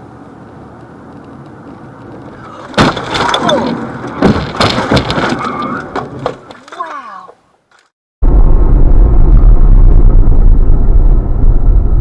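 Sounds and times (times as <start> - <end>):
vehicle crash smash: 2.5 - 6.5
sharp impacts: 2.6 - 6.5
steady rumble: 8.2 - 12.0.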